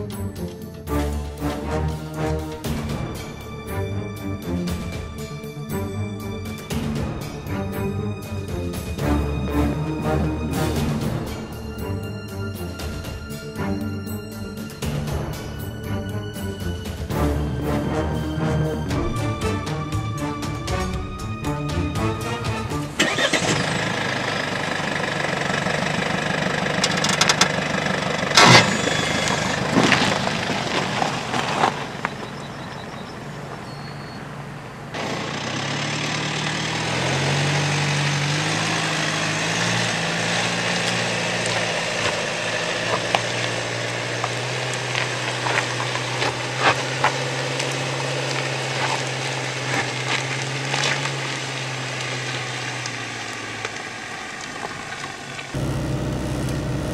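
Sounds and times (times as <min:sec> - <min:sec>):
car engine pulling uphill: 0:00.0 - 0:56.9
tyres crunching on loose stones: 0:23.0 - 0:34.0, 0:34.9 - 0:56.9.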